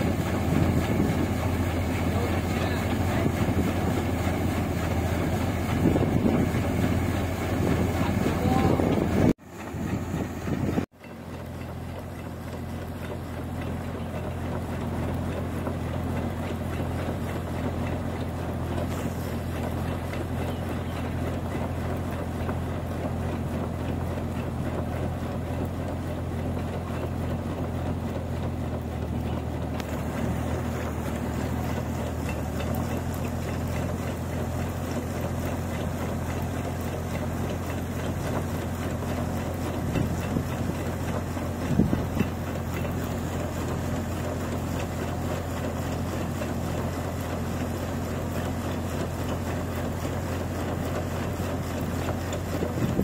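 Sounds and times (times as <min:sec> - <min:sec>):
harvester engine droning: 0:00.0 - 0:53.0.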